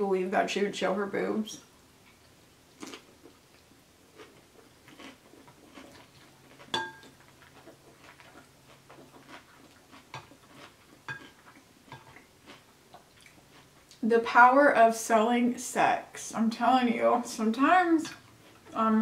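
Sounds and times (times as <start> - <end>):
soft chewing: 2.0 - 14.0, 18.1 - 18.8
fork clinking on glass bowl: 6.7 - 7.1.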